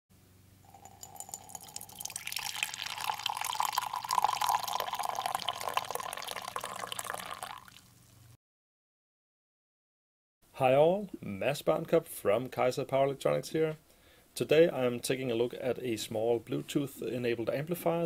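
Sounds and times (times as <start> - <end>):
coffee pouring into mug: 0.6 - 8.0.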